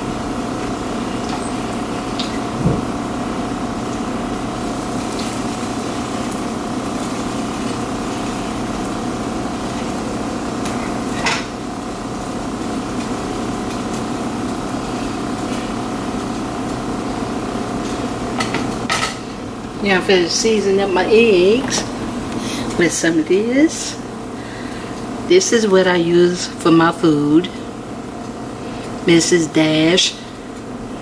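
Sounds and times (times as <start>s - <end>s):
steady hum: 0.0s - 31.0s
pancake frying in a pan: 0.1s - 19.7s.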